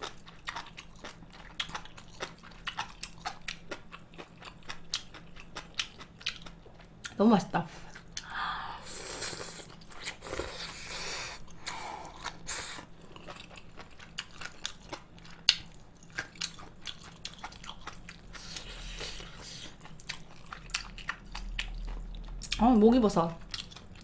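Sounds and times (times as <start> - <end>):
person slurping noodles: 8.7 - 11.4.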